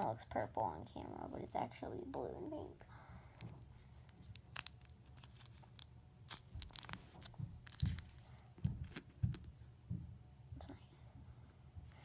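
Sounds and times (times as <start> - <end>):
paper crinkling: 3.4 - 9.5.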